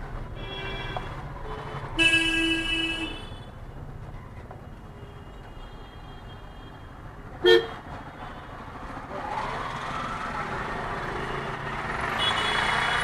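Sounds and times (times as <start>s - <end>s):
street traffic noise: 0.0s - 13.0s
vehicle horn toot: 7.4s - 7.8s.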